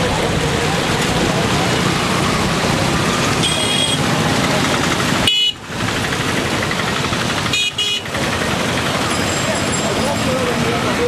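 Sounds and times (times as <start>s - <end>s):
flooded river rushing: 0.0s - 11.0s
high-pitched vehicle horn toot: 5.3s - 5.6s, 7.5s - 8.1s.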